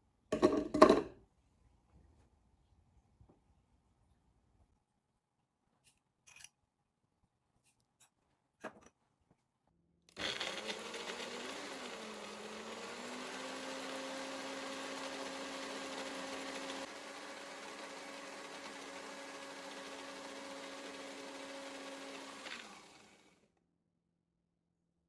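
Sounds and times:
blender motor running: 10.2 - 23.5.

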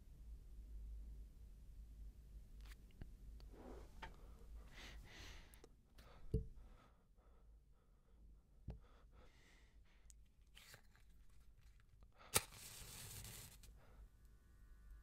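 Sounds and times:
match striking matchbox: 10.5 - 13.8
match head hissing: 12.2 - 13.8.

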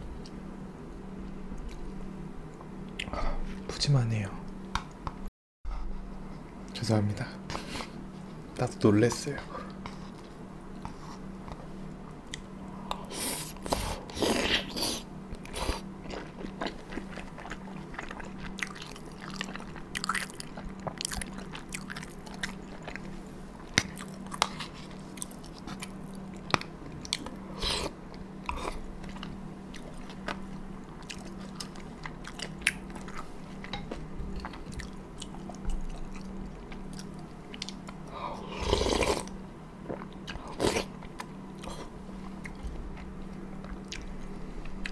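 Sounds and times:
faint steady hum: 0.0 - 44.9
person chewing dumplings: 12.3 - 44.9.

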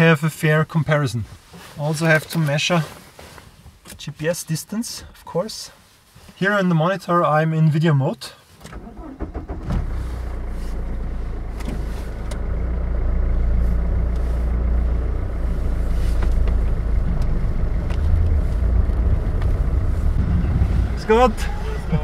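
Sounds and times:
car engine hum from inside: 8.7 - 22.0.

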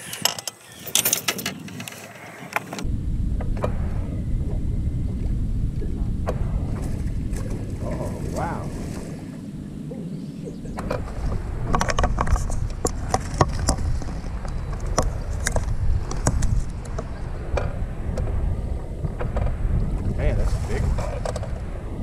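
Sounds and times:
wind rumbling on microphone: 0.0 - 22.0
sharp clicks and knocks: 11.7 - 18.3.

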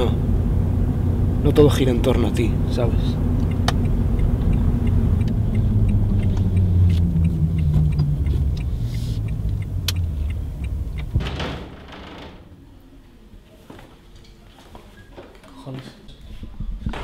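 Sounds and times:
car engine running: 0.0 - 11.2
road noise: 0.0 - 12.8
low hum: 0.0 - 12.9.

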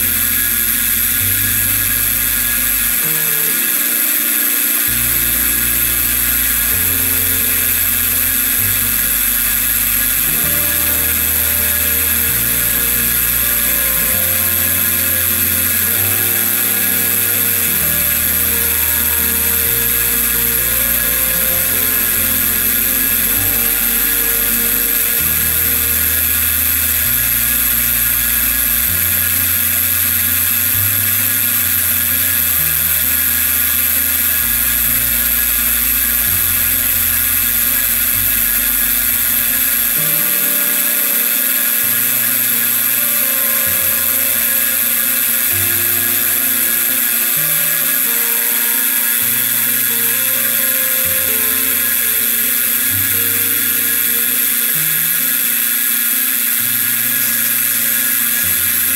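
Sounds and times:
background music with bass: 0.0 - 58.9
milling machine whine: 0.0 - 58.9.

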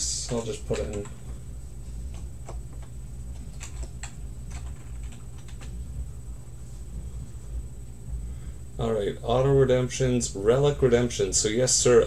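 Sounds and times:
steady low hum: 0.0 - 12.0
keyboard typing clicks: 0.2 - 1.2, 2.1 - 5.8.

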